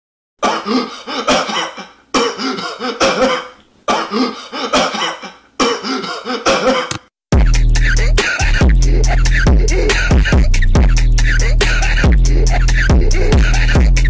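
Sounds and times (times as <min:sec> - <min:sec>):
man coughing: 0:00.4 - 0:07.0, 0:07.8 - 0:08.8, 0:09.6 - 0:10.5.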